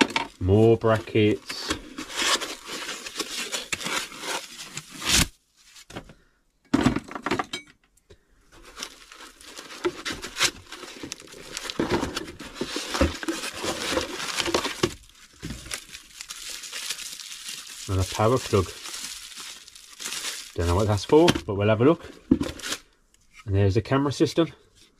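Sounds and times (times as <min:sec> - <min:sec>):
plastic packaging crinkling: 0:00.0 - 0:05.3, 0:08.6 - 0:21.3.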